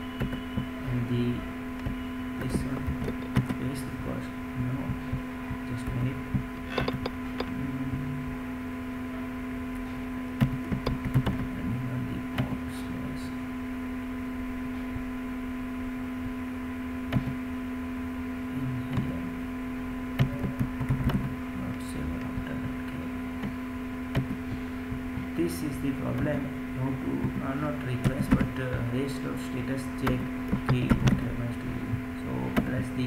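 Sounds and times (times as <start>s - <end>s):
electrical hum: 0.0s - 33.0s
keyboard and mouse clicks: 1.8s - 3.6s, 5.8s - 7.6s, 10.4s - 11.5s, 20.2s - 21.4s, 28.0s - 28.6s, 30.0s - 31.3s.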